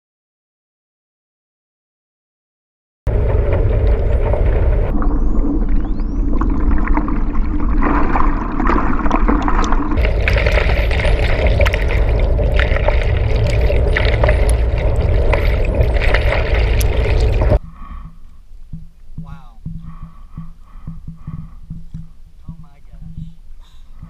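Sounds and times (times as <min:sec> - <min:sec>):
water rushing and bubbling underwater: 0:03.1 - 0:24.0
echolocation clicks: 0:09.4 - 0:17.6.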